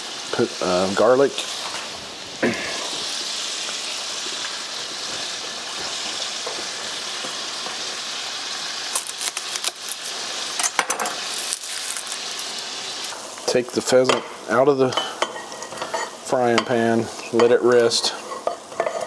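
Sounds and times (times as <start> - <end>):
meat sizzling in butter: 0.0 - 19.0
garlic bulb crackling: 3.9 - 13.2.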